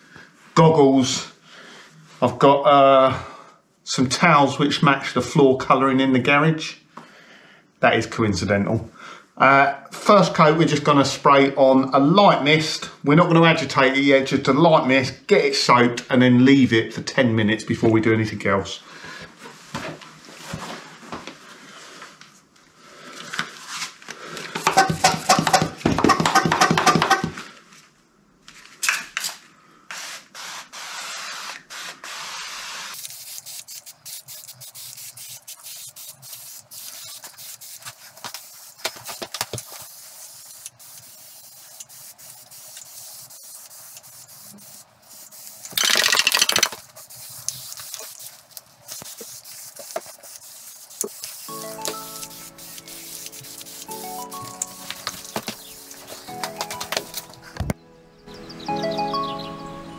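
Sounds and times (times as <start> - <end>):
pressure sprayer hissing bursts: 30.0 - 56.6.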